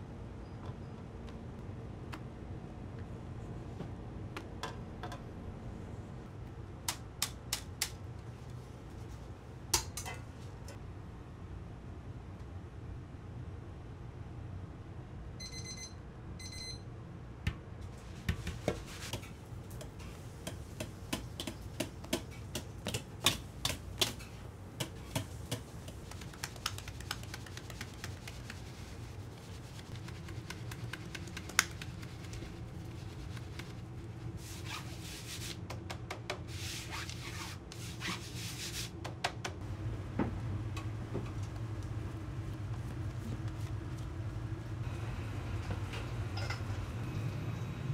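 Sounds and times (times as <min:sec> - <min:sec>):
steady low hum: 0:39.6 - 0:47.9.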